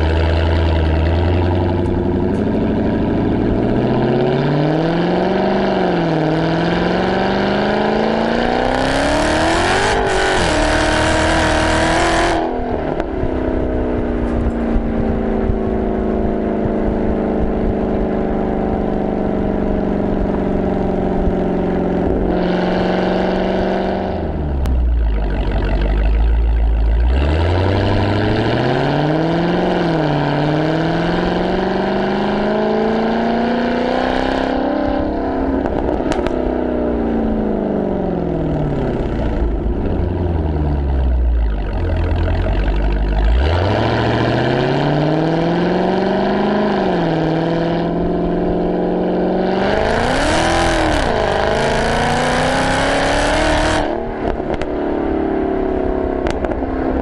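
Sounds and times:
exhaust pops: 0.0s - 3.8s, 12.8s - 18.0s, 35.4s - 36.5s, 54.0s - 54.8s, 56.2s - 57.0s
car engine accelerating: 0.0s - 57.0s.

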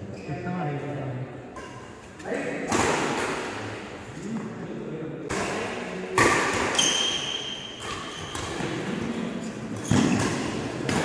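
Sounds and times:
racket hitting shuttlecock: 2.7s - 3.7s, 5.3s - 11.0s
shoes squeaking on court: 6.7s - 8.7s, 9.4s - 10.9s.

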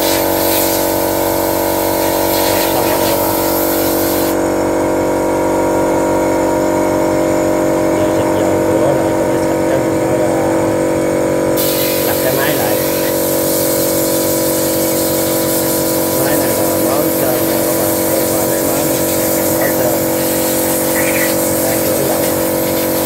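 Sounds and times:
hose nozzle spraying oil: 0.0s - 4.4s, 11.5s - 23.0s
pump humming: 0.0s - 23.0s.

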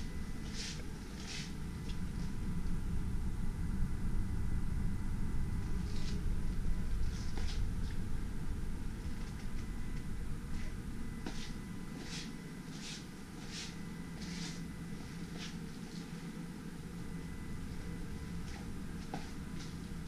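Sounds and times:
faint high whine: 0.0s - 20.0s
low steady rumble: 0.0s - 20.0s
soft scuffing footsteps: 0.4s - 2.4s, 7.0s - 8.0s, 10.5s - 16.3s, 18.4s - 20.0s.

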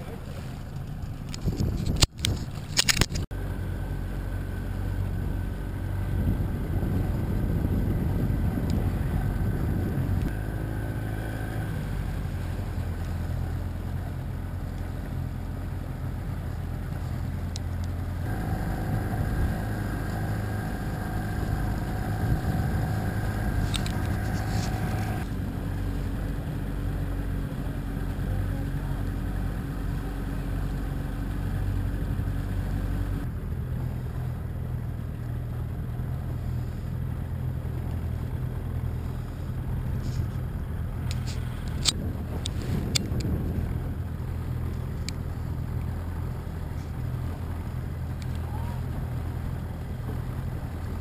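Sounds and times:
outboard motor running: 0.0s - 51.0s
water noise: 0.0s - 51.0s
wind noise: 1.1s - 3.3s, 5.1s - 10.4s, 18.2s - 27.2s, 38.9s - 49.5s.

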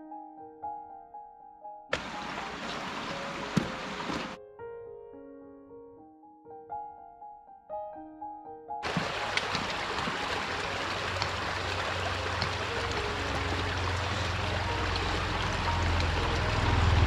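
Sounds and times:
running water: 1.9s - 4.4s, 8.8s - 17.0s.

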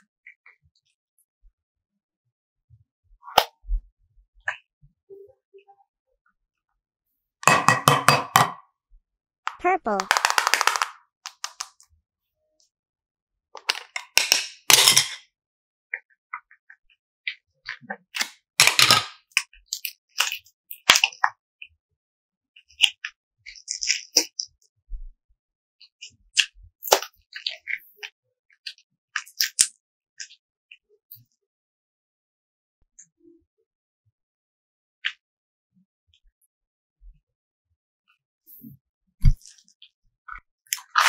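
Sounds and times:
clay popping and crackling: 9.5s - 11.8s.

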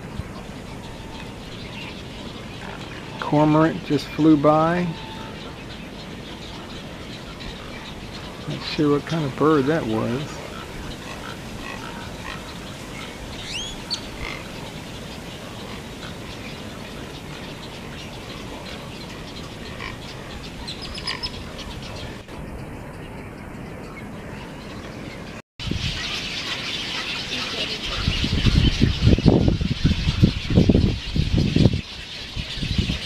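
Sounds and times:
frogs calling: 0.0s - 22.6s
bird colony chatter: 0.0s - 33.0s.

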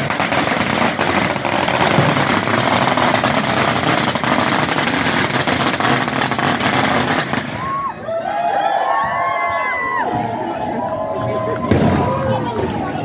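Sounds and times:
firecrackers crackling: 0.0s - 7.9s, 11.0s - 13.0s.

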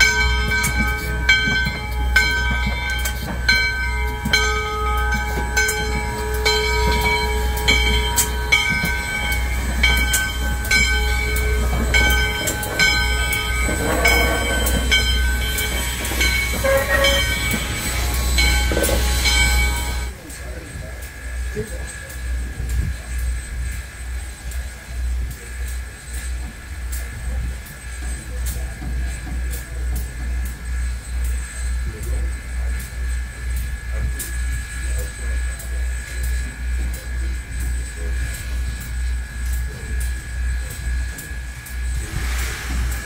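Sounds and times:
locomotive bell ringing: 0.0s - 20.3s
steam locomotive rumble: 0.0s - 43.0s.

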